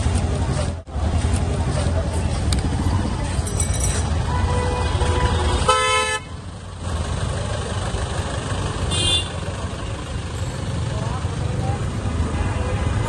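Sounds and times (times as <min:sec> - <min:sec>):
street traffic rumble: 0:00.0 - 0:13.0
vehicle horn honking: 0:04.3 - 0:06.3, 0:08.9 - 0:09.4.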